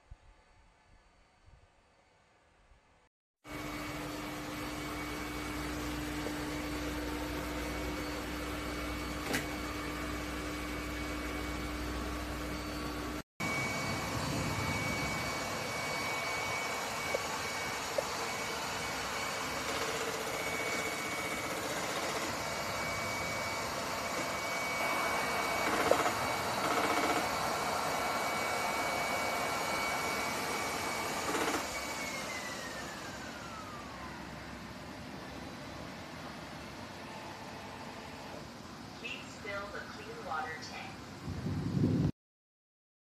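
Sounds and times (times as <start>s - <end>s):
robot mop motor whir: 14.4s - 33.9s.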